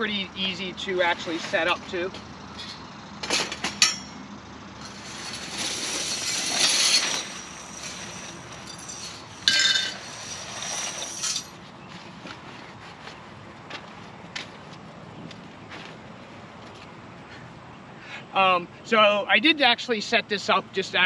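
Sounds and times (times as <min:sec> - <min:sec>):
metal parts clinking and rattling: 0:02.5 - 0:04.2, 0:04.8 - 0:11.6.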